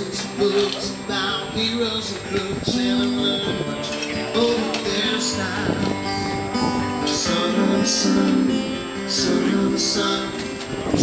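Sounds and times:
strummed guitar music: 0.0 - 11.0.

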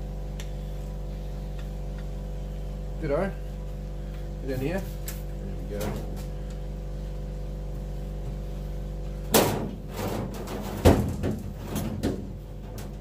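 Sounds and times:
steady low hum: 0.0 - 13.0
sharp knocks on metal cabinet: 9.3 - 12.4.

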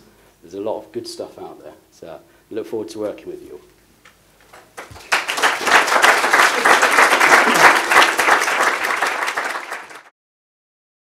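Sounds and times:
audience applauding: 4.5 - 10.1.

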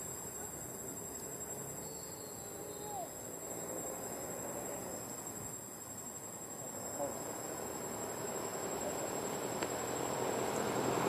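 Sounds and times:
insects droning: 0.0 - 11.0
faint short calls: 1.8 - 3.2.

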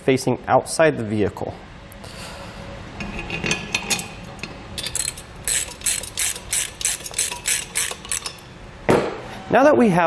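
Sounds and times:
socket ratchet clicking: 4.8 - 8.4.

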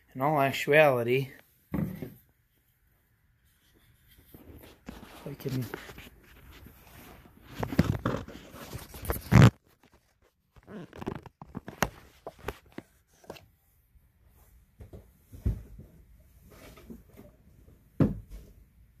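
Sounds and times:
fabric rustling and scraping: 2.3 - 13.3.

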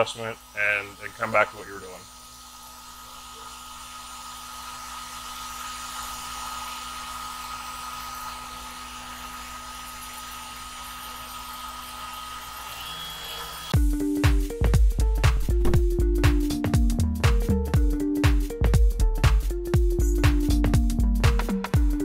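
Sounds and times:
router spindle motor whining: 12.0 - 13.8.

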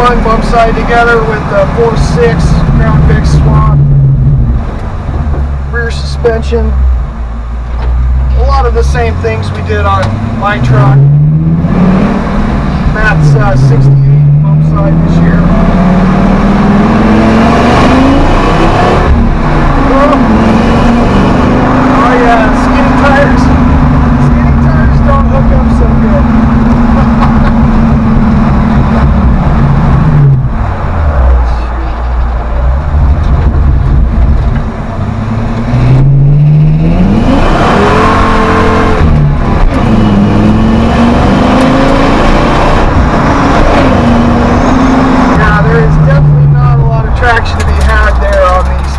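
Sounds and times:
tires spinning on pavement: 8.5 - 48.9
engine revving hard: 9.1 - 31.5, 35.1 - 48.7.

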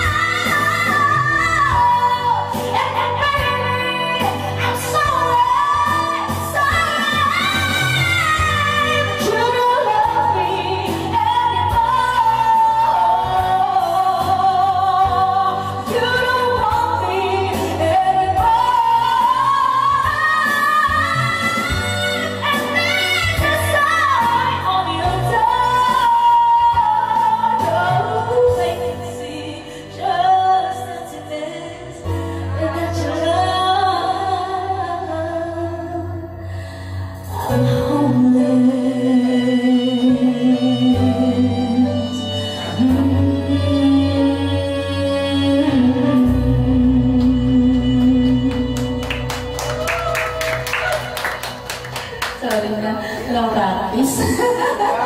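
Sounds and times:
woman singing into karaoke microphone: 0.0 - 51.4, 52.2 - 55.0
karaoke backing track: 0.0 - 55.0.

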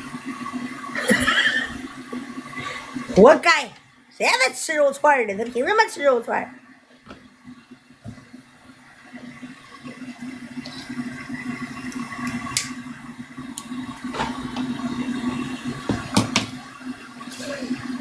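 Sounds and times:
toilet flushing: 0.0 - 18.0.

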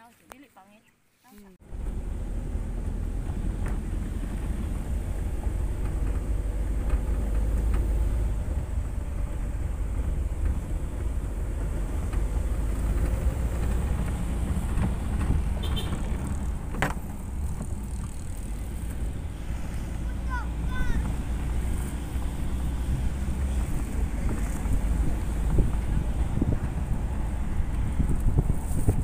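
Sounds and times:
wind and road noise: 0.0 - 29.0.

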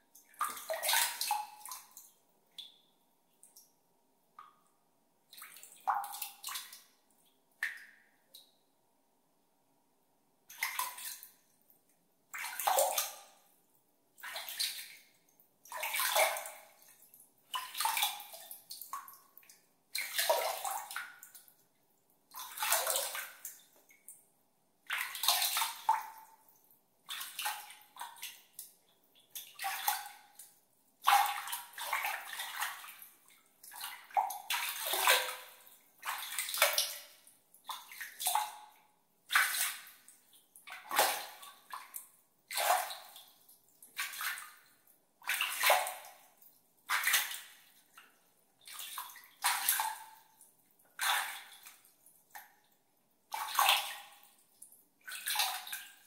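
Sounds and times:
water splashed by hand: 31.1 - 33.0, 33.7 - 37.2.

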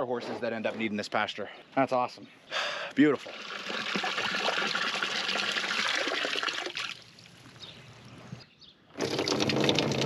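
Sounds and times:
water trickling into trough: 3.1 - 7.5, 9.0 - 10.0.

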